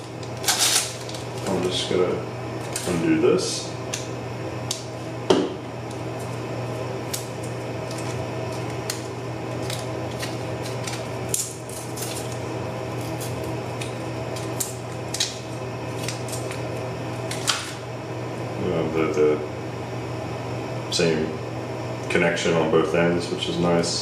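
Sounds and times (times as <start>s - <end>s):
cable clicking and crinkling: 0.0s - 1.8s, 7.1s - 12.4s.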